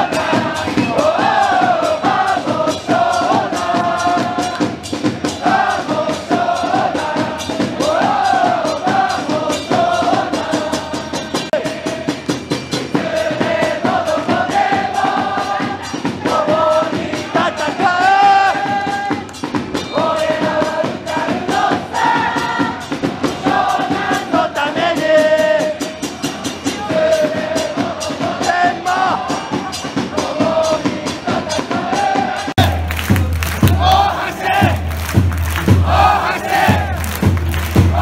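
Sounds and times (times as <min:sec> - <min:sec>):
crowd singing a chant: 0:00.0 - 0:38.0
steady beat: 0:32.4 - 0:38.0.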